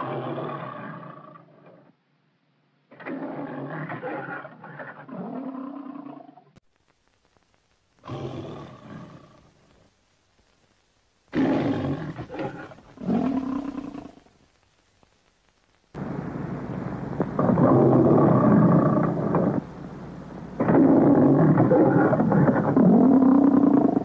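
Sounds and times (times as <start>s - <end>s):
lion roaring: 0.0s - 1.9s, 2.9s - 6.5s, 8.0s - 9.5s, 11.3s - 14.3s, 17.4s - 19.6s, 20.6s - 24.0s.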